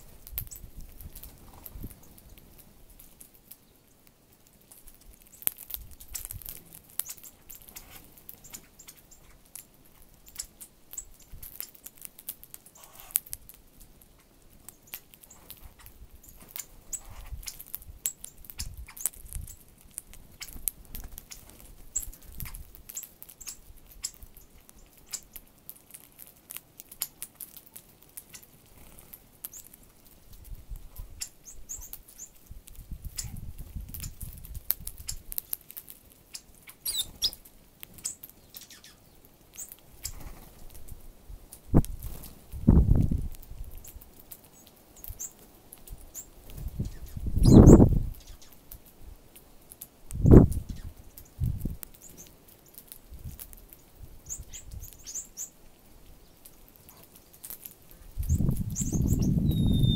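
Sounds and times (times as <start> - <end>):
birds chirping: 0.0 - 2.6, 4.8 - 11.8, 14.0 - 26.0, 30.9 - 32.4, 36.2 - 40.6, 43.8 - 45.4, 46.0 - 48.6, 50.2 - 52.8, 54.2 - 55.6, 56.2 - 59.9
birds pecking seed: 0.0 - 59.9.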